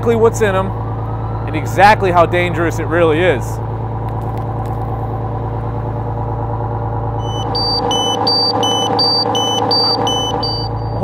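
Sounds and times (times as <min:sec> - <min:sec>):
diesel engine idling: 0:00.0 - 0:11.0
gas meter alarm beeps: 0:07.2 - 0:11.0.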